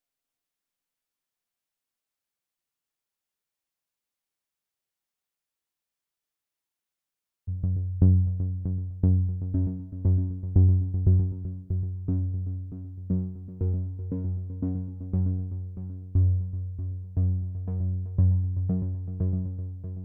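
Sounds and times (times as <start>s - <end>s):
steady low bass: 7.5s - 20.0s
synthesizer music: 7.5s - 20.0s.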